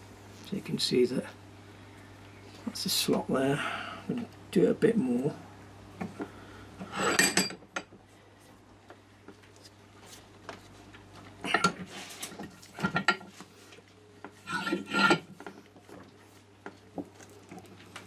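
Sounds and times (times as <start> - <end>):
vise metallic scraping and clanking: 6.9 - 7.6, 14.4 - 15.4.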